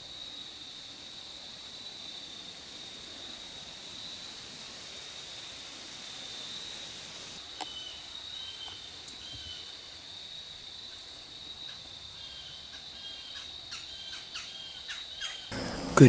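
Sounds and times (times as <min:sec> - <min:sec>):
high insect drone: 0:00.0 - 0:16.0
birds chirping: 0:11.6 - 0:16.0.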